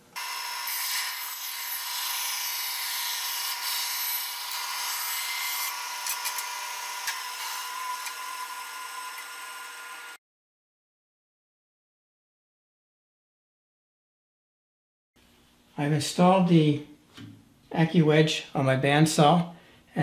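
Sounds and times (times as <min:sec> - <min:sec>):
band saw cutting wood: 0:00.1 - 0:10.2.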